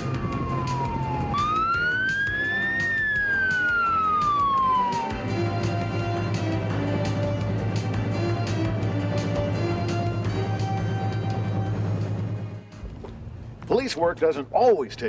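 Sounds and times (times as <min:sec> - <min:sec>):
police siren wailing: 0:00.0 - 0:07.2
background music with steady beat: 0:00.0 - 0:12.9.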